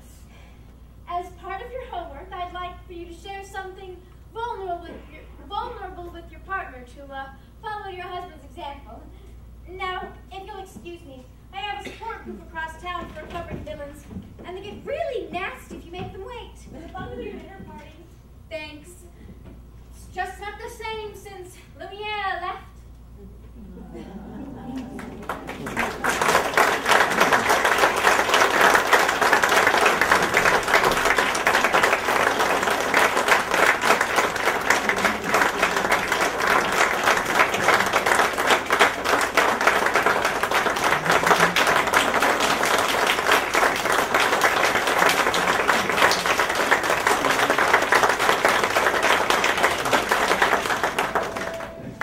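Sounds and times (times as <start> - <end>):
audience applauding: 23.9 - 52.0.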